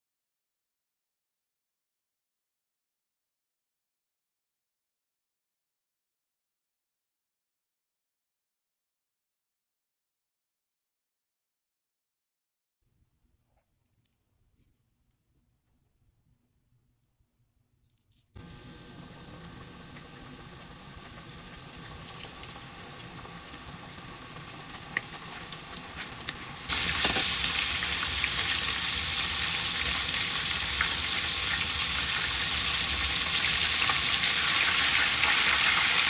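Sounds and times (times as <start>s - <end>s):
chicken deep-frying in oil: 18.4s - 36.0s
oil crackling and popping: 18.4s - 36.0s.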